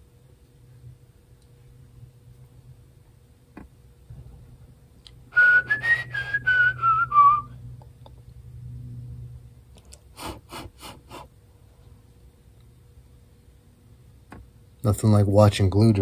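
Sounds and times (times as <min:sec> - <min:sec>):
person whistling a tune: 0:05.4 - 0:07.5.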